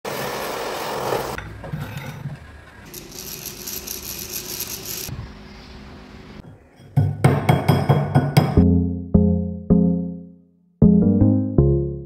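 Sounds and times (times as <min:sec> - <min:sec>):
gas torch hissing: 0:00.1 - 0:01.4.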